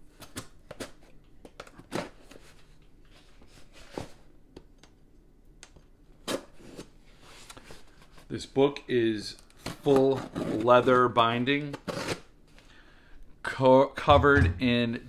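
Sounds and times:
knife slitting packing tape: 0:11.7 - 0:12.2.

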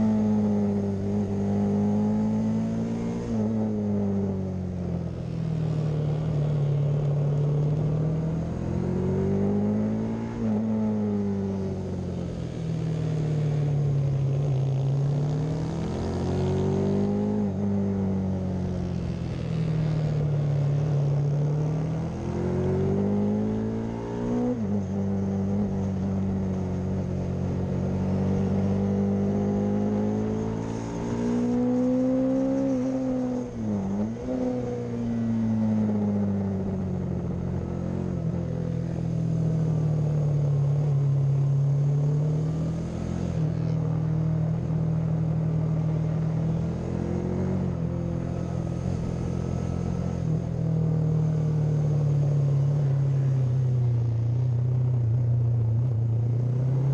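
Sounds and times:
racing motorcycle engine revving: 0:00.0 - 0:04.2, 0:05.3 - 0:54.3.

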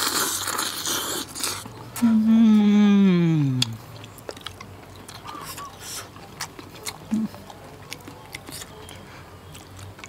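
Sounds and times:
man chewing and lip smacking: 0:00.0 - 0:02.7, 0:03.5 - 0:10.0.

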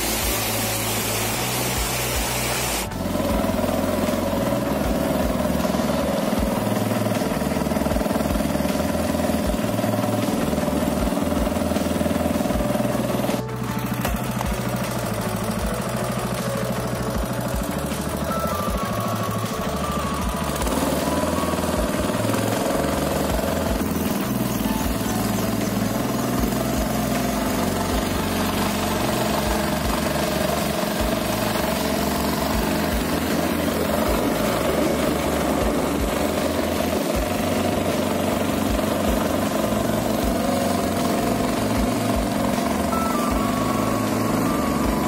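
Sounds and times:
boat engine droning: 0:00.0 - 0:45.0.

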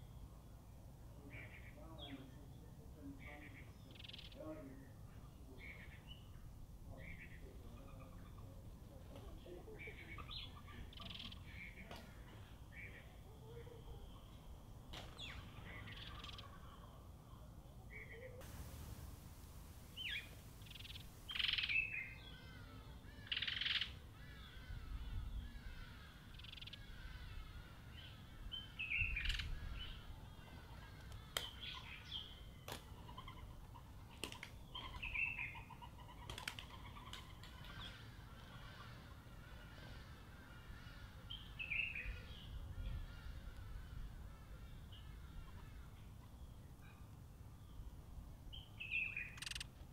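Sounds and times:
small birds chirping: 0:01.2 - 0:47.9, 0:48.5 - 0:49.9
birds pecking seed on stone: 0:49.4 - 0:49.6.

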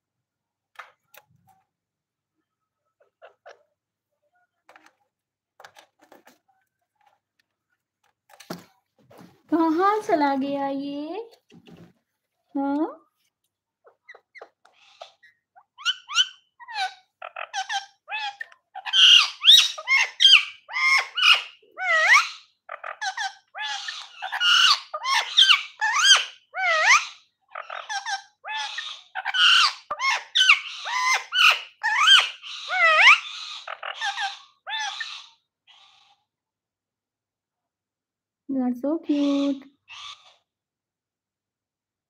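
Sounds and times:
parakeet squawking and whistling: 0:13.8 - 0:36.2.

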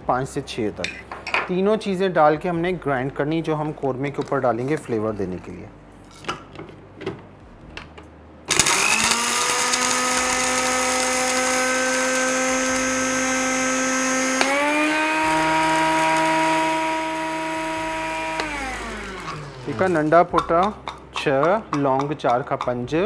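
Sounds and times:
electric grinder motor whine: 0:08.5 - 0:20.1.

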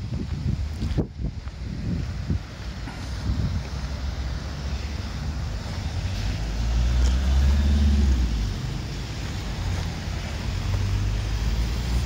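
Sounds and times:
cars and vans driving past: 0:00.0 - 0:12.0.

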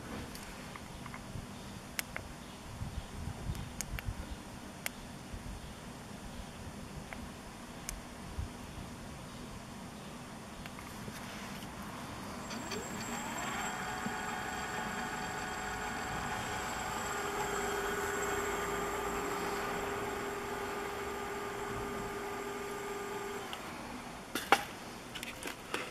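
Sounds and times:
hub motor whine: 0:12.3 - 0:24.3.

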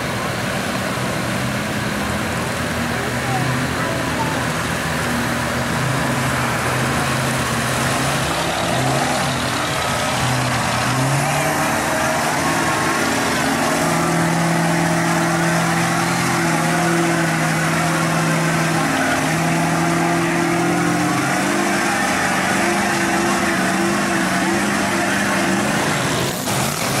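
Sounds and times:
truck engine revving under load: 0:00.0 - 0:27.0.

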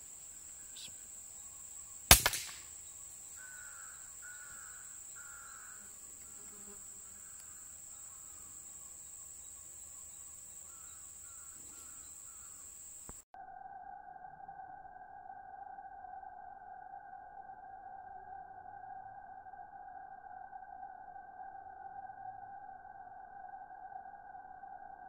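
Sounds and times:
bird calling: 0:00.0 - 0:13.1
high insect whine: 0:00.0 - 0:25.0
air rifle shot: 0:02.1 - 0:02.7.

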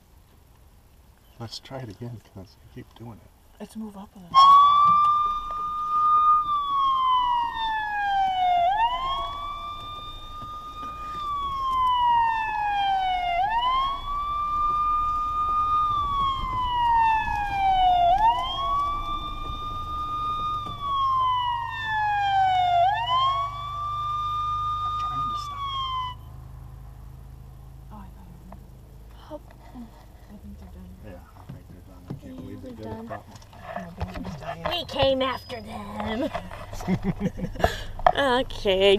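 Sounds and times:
police siren wailing: 0:04.3 - 0:26.8.

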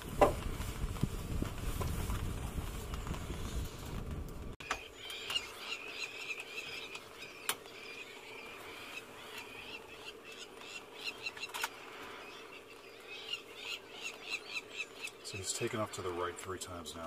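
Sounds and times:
birds shrill alarm calls: 0:04.6 - 0:15.9.

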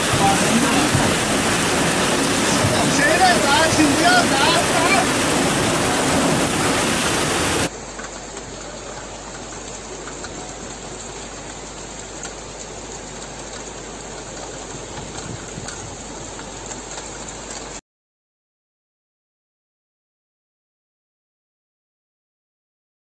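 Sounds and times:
floodwater rushing: 0:00.0 - 0:17.8
heavy rain hissing: 0:00.0 - 0:17.8
rain patters: 0:00.0 - 0:17.8.

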